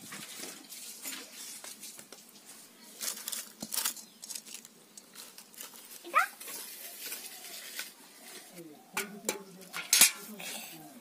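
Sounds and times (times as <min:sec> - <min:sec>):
rustling and scraping handling noises: 0:00.0 - 0:11.0.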